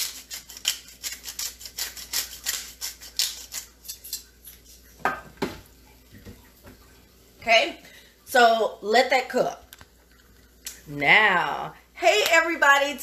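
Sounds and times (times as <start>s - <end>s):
pepper grinder crunching: 0.0s - 4.6s.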